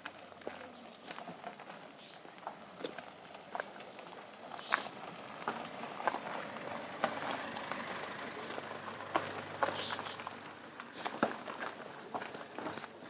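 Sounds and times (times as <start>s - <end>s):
footsteps on dirt: 0.0s - 13.0s
tyres rolling over dirt: 0.1s - 13.0s
low engine hum: 4.3s - 11.6s.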